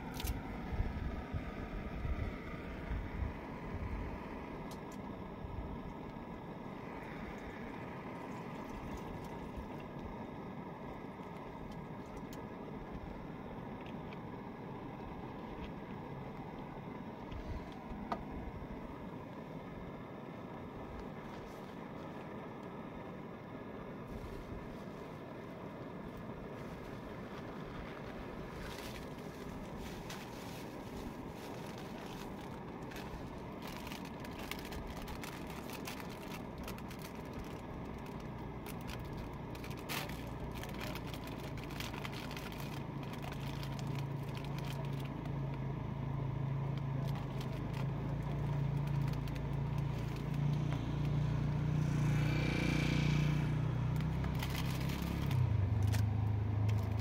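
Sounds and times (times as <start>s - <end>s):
low engine drone: 0.0s - 57.0s
plastic packet crinkling: 28.4s - 45.6s, 46.7s - 50.7s, 54.0s - 56.0s, 56.6s - 57.0s.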